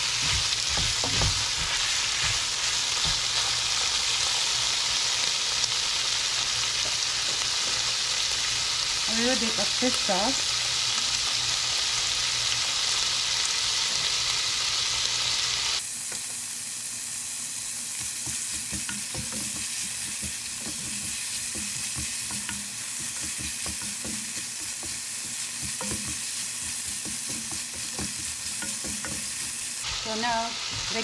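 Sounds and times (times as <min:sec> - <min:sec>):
food sizzling in a pan: 0:00.0 - 0:31.0
spatula clicking and scraping: 0:18.0 - 0:29.8.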